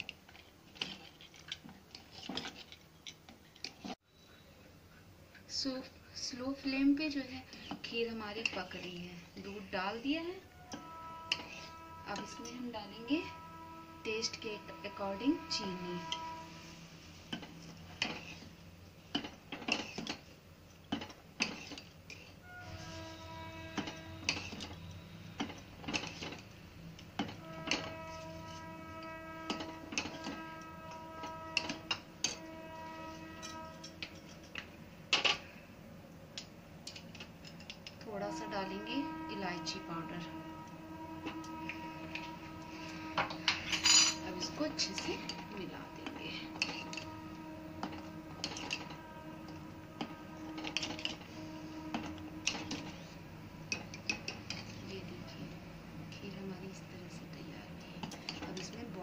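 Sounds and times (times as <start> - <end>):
spoon scraping and clinking in pot: 0.0 - 4.0, 7.5 - 10.1, 10.7 - 13.3, 15.2 - 18.5, 19.1 - 35.5, 36.9 - 38.0, 41.2 - 54.9, 57.9 - 58.9.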